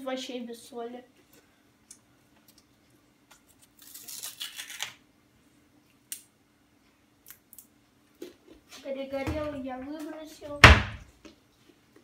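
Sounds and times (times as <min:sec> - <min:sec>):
potato chips crinkling on baking paper: 0:03.4 - 0:05.0.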